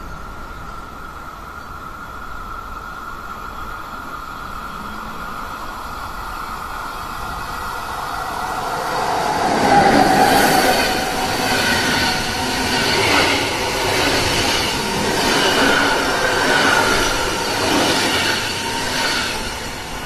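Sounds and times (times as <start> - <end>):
train passing: 0.0 - 20.0
high-pitched ringing: 6.4 - 20.0.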